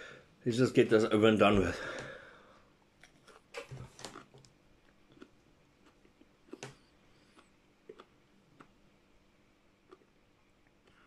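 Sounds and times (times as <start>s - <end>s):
person chewing a pepper: 3.0s - 8.8s, 9.8s - 11.0s.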